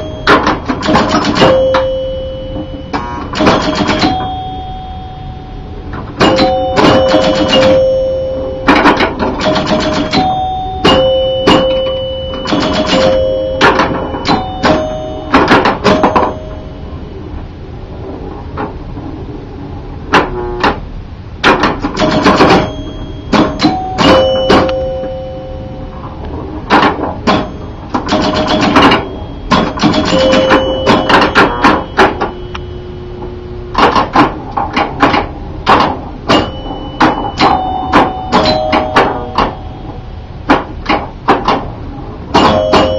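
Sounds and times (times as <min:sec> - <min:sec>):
pinball mechanisms clicking and clacking: 0:00.0 - 0:05.1, 0:05.8 - 0:17.0, 0:20.1 - 0:42.9
pinball chime bells ringing: 0:00.0 - 0:17.1, 0:22.0 - 0:26.2, 0:26.9 - 0:34.1, 0:36.2 - 0:40.8, 0:42.3 - 0:42.9.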